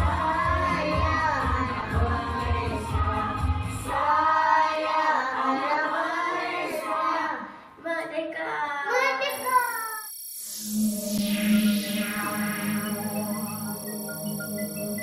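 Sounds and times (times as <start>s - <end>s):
child singing: 0.0s - 10.0s.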